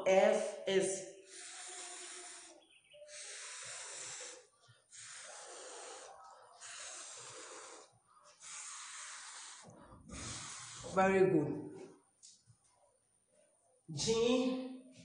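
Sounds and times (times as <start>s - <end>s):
woman making fff hiss: 1.3s - 7.8s, 8.4s - 11.0s.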